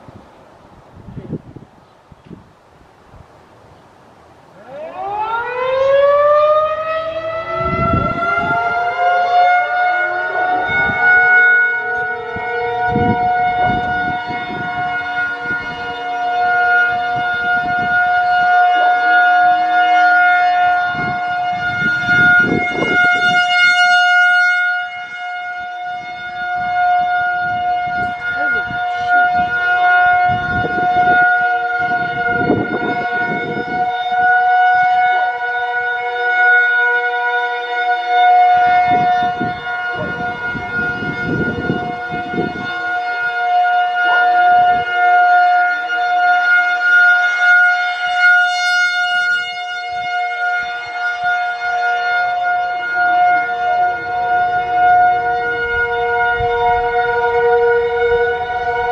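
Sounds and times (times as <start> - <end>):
wind buffeting microphone: 0.0 - 3.8, 4.7 - 48.4, 49.4 - 58.9
distant sirens winding up: 4.4 - 58.9
warning siren wailing: 4.4 - 58.9.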